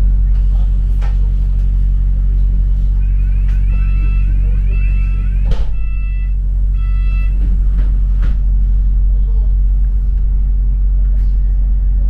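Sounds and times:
bus engine humming: 0.0 - 12.0
electronic warbling tone and beeps: 3.0 - 7.4.

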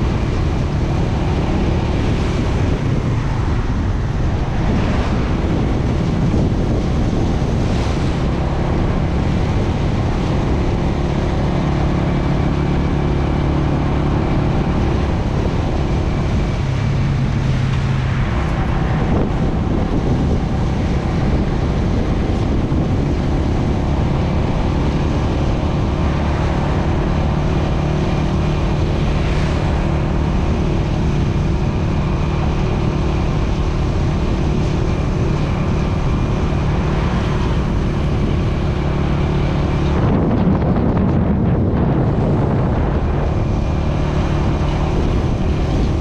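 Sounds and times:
wind over microphone: 0.0 - 46.0.

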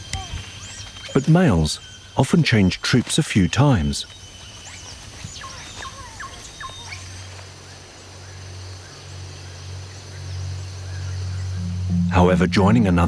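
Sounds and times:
high insect drone: 0.0 - 13.0
low music drone: 10.0 - 13.0.

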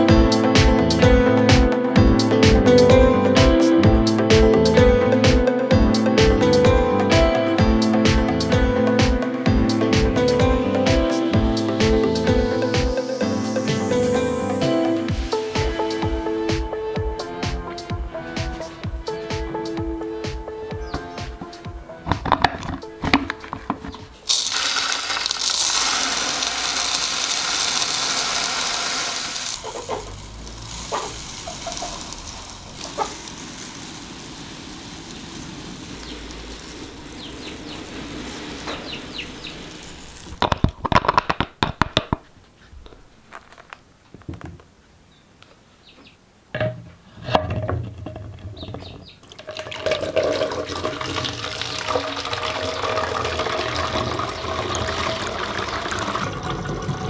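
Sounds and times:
plastic clicks and knocks: 22.1 - 24.0, 40.4 - 42.2
dry feed running into bottle: 22.2 - 29.8, 49.3 - 57.0
water pouring into plastic bottle: 24.2 - 37.1, 49.2 - 57.0.

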